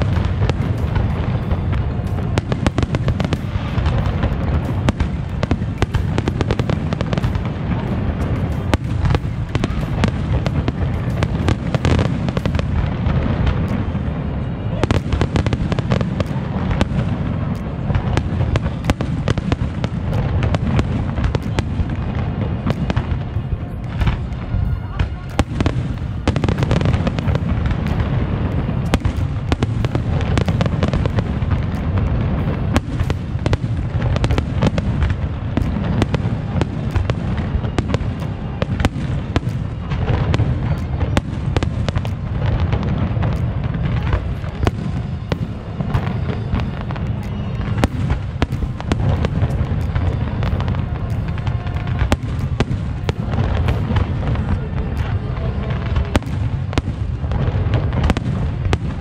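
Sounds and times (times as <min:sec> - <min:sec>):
firework shells bursting: 0:15.0 - 0:55.2.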